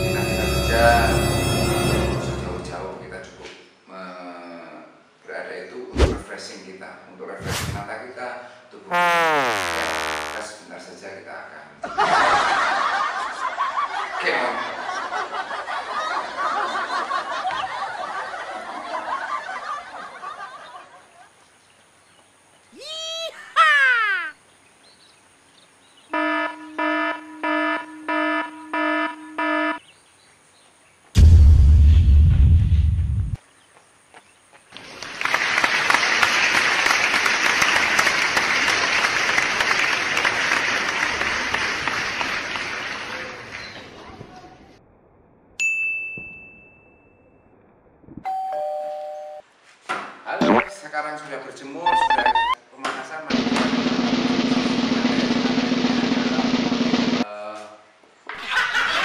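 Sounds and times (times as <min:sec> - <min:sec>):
crowd laughing: 0:11.8 - 0:21.4, 0:58.3 - 0:59.0
crowd applauding: 0:34.8 - 0:43.9.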